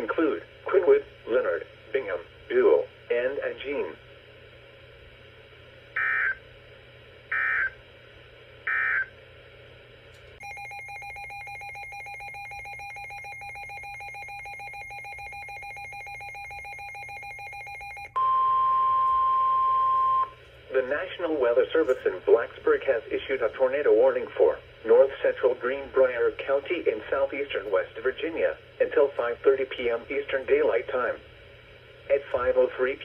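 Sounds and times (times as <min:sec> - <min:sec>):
rapidly pulsing electronic alarm: 0:06.0 - 0:06.4, 0:07.3 - 0:07.8, 0:08.6 - 0:09.1, 0:10.4 - 0:20.4
steady single-pitch alarm tone: 0:06.0 - 0:06.4, 0:07.3 - 0:07.8, 0:08.6 - 0:09.1, 0:10.4 - 0:20.4.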